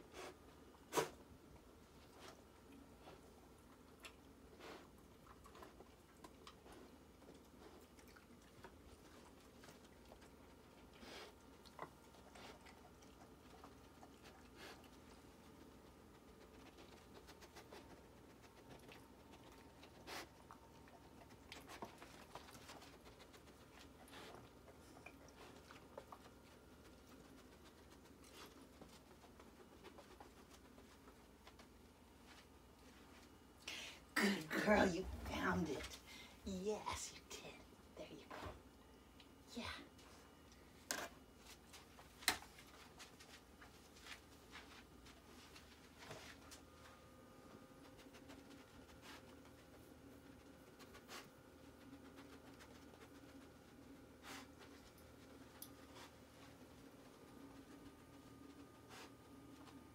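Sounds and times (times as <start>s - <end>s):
puppy sniffing: 10.5s - 31.0s.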